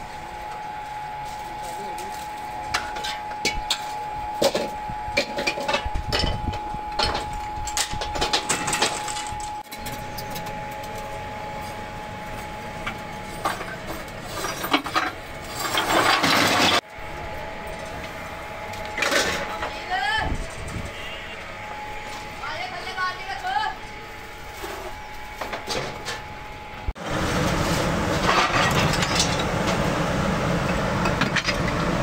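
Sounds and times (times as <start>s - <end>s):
metal clatter: 2.7s - 11.0s, 13.3s - 16.8s, 28.1s - 29.8s
scrap metal clanking into skip: 13.3s - 16.8s, 27.4s - 29.8s.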